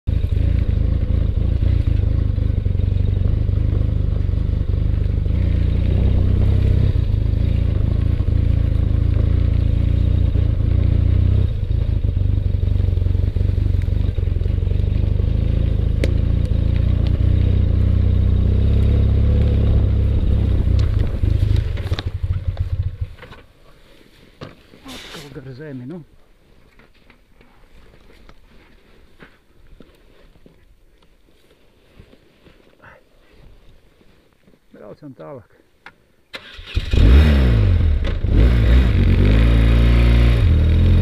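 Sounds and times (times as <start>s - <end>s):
motorcycle engine running: 0.0s - 23.4s, 36.8s - 41.0s
motorcycle rattling: 0.1s - 23.6s, 36.4s - 41.0s.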